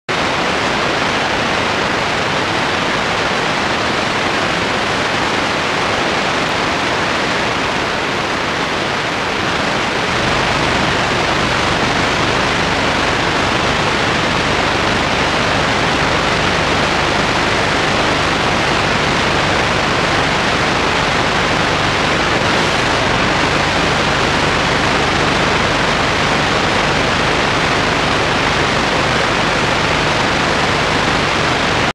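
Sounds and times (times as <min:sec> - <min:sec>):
static-like hiss: 0:00.1 - 0:31.9
deep rumble: 0:22.0 - 0:27.4.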